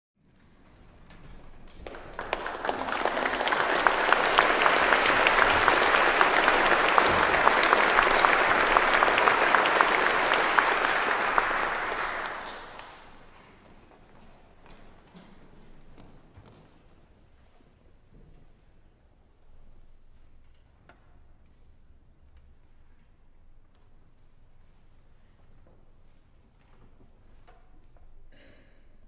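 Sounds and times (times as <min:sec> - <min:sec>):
audience applauding: 0:01.4 - 0:13.6.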